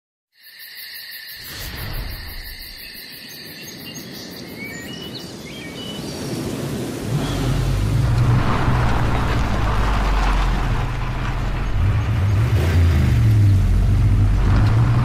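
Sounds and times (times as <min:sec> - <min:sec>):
insect chirring: 0:00.4 - 0:05.0
deep bass: 0:07.2 - 0:15.0.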